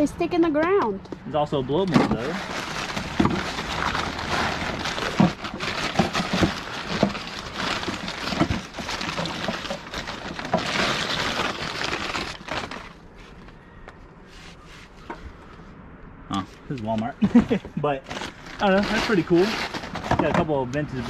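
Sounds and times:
paper crinkling and rustling: 1.9 - 13.6, 17.4 - 21.0.

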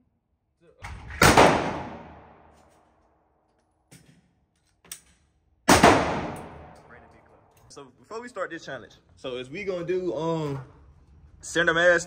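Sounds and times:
gunshots: 0.9 - 2.5, 5.7 - 6.8.

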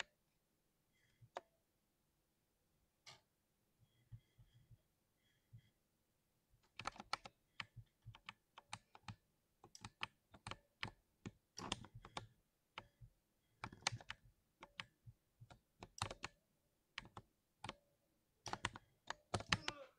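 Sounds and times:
mechanical keyboard typing: 6.7 - 12.9, 13.6 - 17.8, 18.4 - 19.8.

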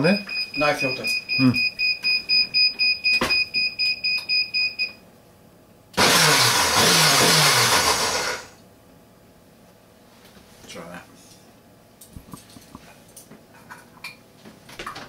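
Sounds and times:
blender panel beeping: 6.0 - 8.5
blender motor running: 6.0 - 8.6.

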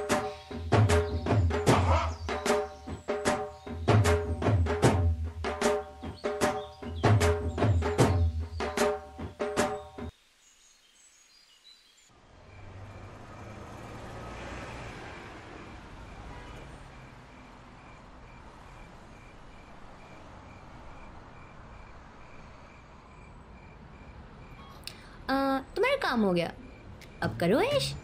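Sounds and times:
distant traffic: 12.1 - 28.0
faint high chirp: 16.9 - 28.0.

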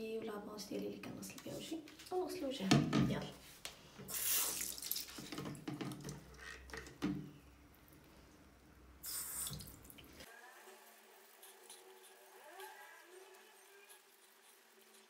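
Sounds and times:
water splashing into basin: 4.1 - 7.0, 9.0 - 10.2.

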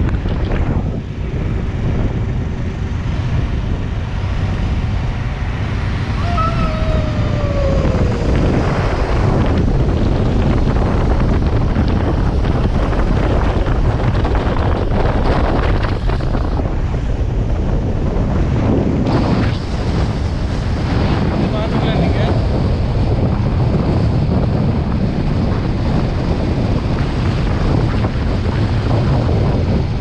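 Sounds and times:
wind buffeting microphone: 0.0 - 30.0
short falling whine: 6.1 - 9.7.

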